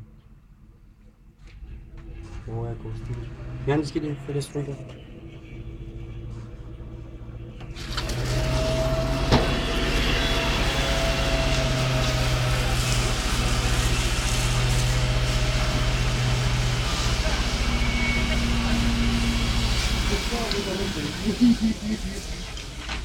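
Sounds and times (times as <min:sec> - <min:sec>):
fire engine running: 0:01.3 - 0:23.0
hose water spraying on car: 0:07.8 - 0:23.0.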